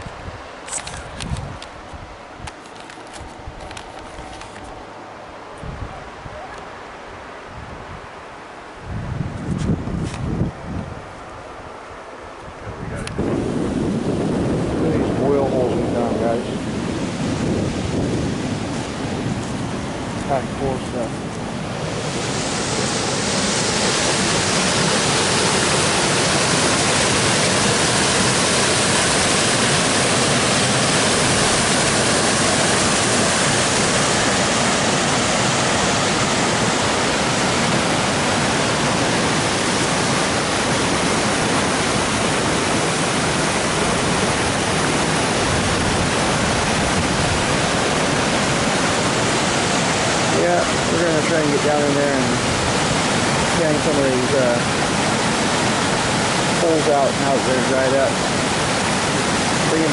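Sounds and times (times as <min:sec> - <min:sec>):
river rushing over rocks: 0:13.3 - 0:59.9.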